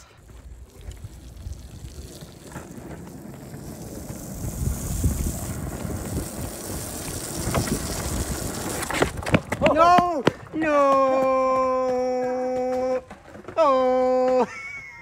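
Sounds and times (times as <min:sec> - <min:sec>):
skateboard wheels rumbling on asphalt: 0:00.0 - 0:15.0
wind buffeting microphone: 0:00.3 - 0:10.6.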